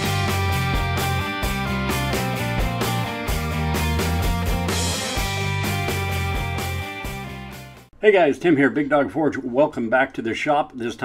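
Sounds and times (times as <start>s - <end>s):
rock music with guitar: 0.0s - 7.9s.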